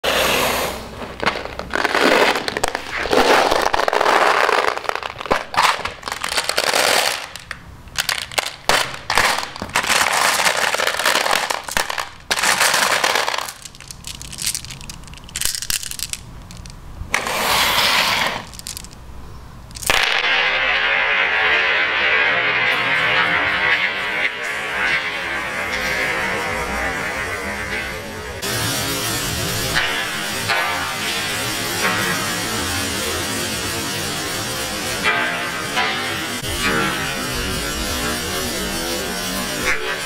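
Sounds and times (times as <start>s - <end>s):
marbles poured onto floor: 0.9s - 19.0s, 19.7s - 21.6s
marbles clattering in a tub: 1.1s - 19.0s, 19.7s - 20.6s.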